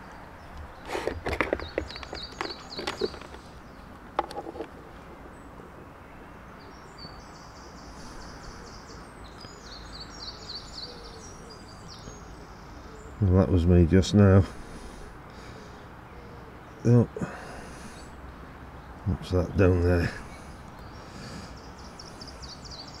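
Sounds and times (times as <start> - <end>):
birds chirping: 0.0 - 23.0
camera case clicks and knocks: 1.0 - 3.5, 4.2 - 4.8.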